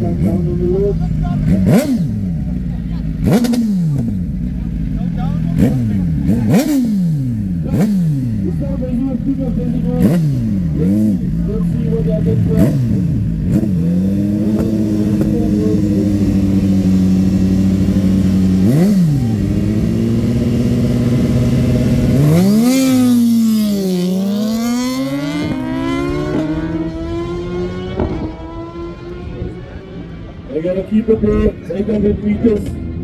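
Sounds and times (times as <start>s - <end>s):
racing motorcycles revving: 0.0s - 33.0s.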